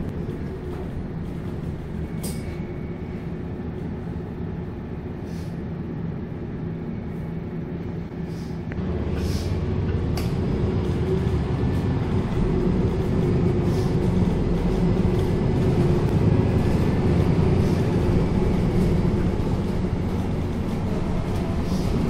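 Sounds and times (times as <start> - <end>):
bus diesel engine running: 0.0 - 22.0
short air hisses: 5.2 - 5.6, 9.2 - 9.6.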